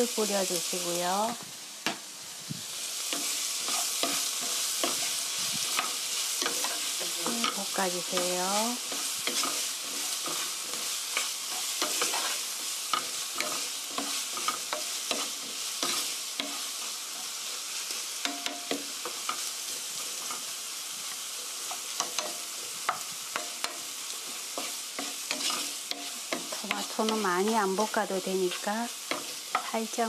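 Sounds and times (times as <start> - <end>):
vegetables sizzling in a frying pan: 0.0 - 30.0
spatula scraping and knocking pan: 3.0 - 17.4, 21.6 - 30.0.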